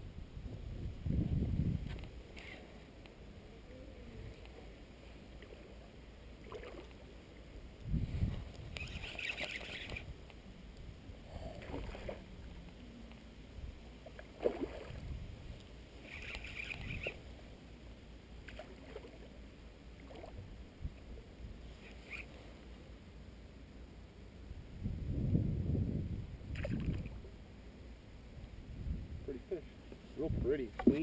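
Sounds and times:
wind rumble on microphone: 0.0s - 2.3s, 7.7s - 17.3s, 24.4s - 27.4s, 28.2s - 31.0s
water lapping against boat: 6.4s - 7.0s, 11.3s - 12.7s, 14.0s - 15.2s, 18.5s - 19.4s, 20.0s - 20.5s.

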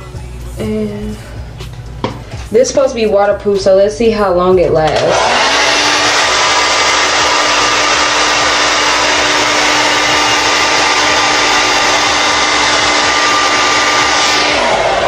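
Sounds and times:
hair dryer blowing: 4.9s - 15.0s.

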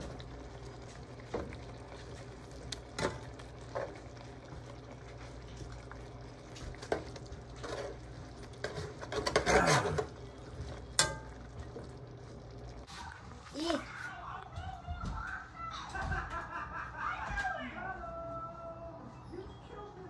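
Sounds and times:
spatula scraping frying pan: 6.8s - 10.4s.

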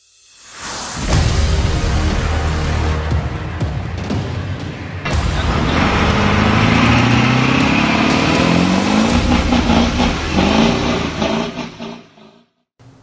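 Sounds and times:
vehicle engine revving: 5.0s - 12.4s.

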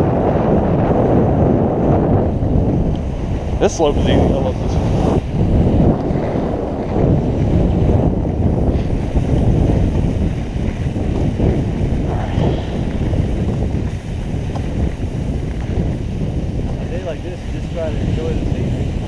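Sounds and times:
wind buffeting microphone: 0.0s - 19.0s
skis scraping icy snow: 8.5s - 18.5s.

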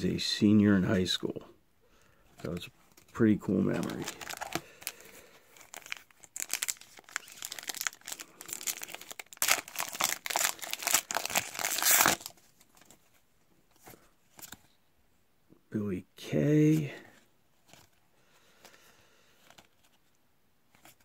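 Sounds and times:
wrapper crinkling and tearing: 3.7s - 13.0s.

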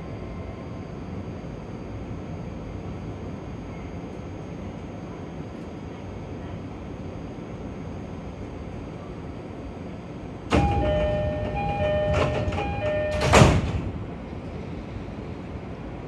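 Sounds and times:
stationary train humming: 0.0s - 16.0s
sliding doors thumping shut: 10.5s - 14.0s
train door chime: 10.5s - 14.0s.

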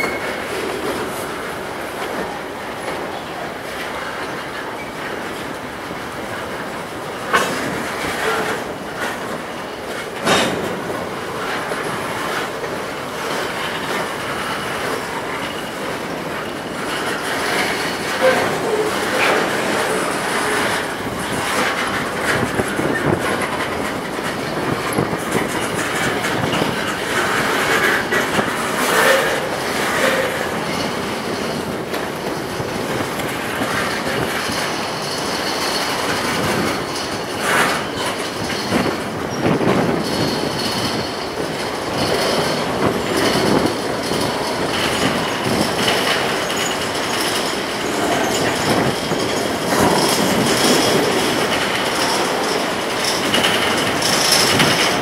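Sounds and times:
faint high wheel squeal: 0.0s - 0.5s
train wheels clattering over rails: 0.0s - 55.0s.

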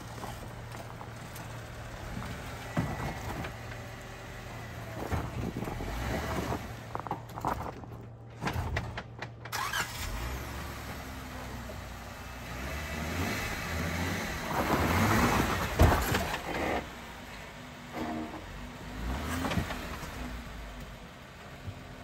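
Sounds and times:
engine running at low revs: 0.0s - 22.0s.

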